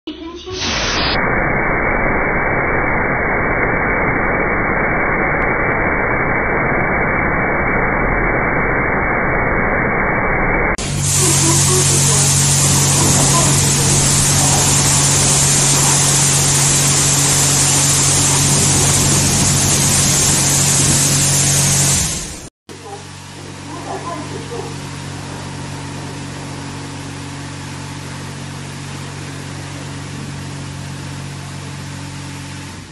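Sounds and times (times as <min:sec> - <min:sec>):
car wash water spray hissing: 0:10.8 - 0:32.9
low machine hum: 0:10.8 - 0:32.9.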